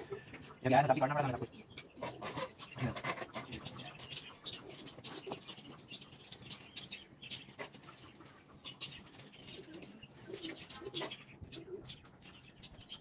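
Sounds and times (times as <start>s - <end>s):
net and feathers rustling: 7.4s - 13.0s.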